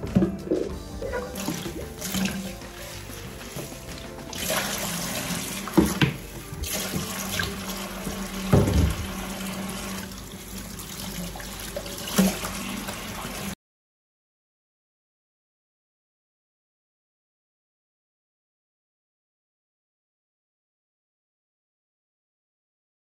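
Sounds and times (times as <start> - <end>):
water splashing: 0.0 - 13.6
tap running into steel sink: 5.7 - 9.7.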